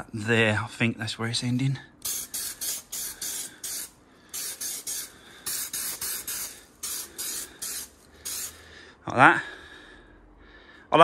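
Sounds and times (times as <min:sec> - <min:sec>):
aerosol spray hissing bursts: 0:02.0 - 0:08.7.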